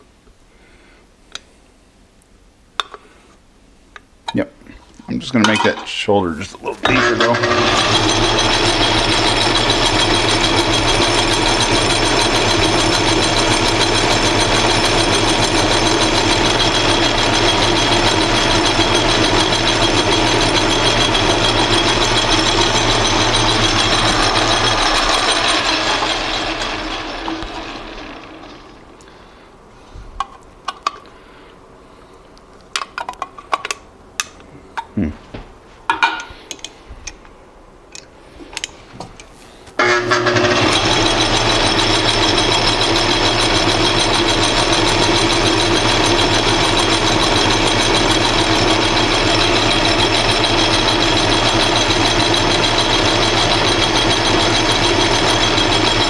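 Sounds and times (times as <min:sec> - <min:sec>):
spindle winding down: 0:06.4 - 0:29.1, 0:39.8 - 0:56.0
metal lathe running: 0:06.8 - 0:28.9, 0:39.8 - 0:56.0.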